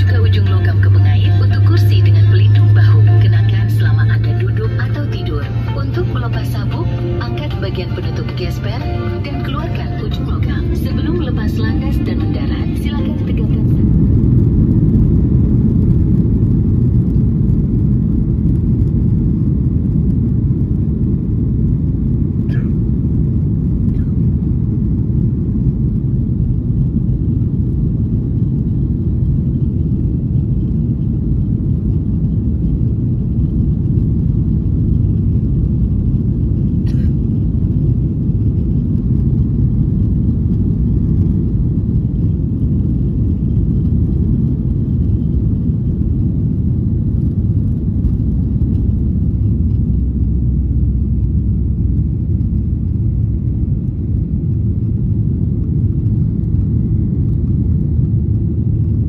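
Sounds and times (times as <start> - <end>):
airplane cabin engine rumble: 0.0 - 59.0.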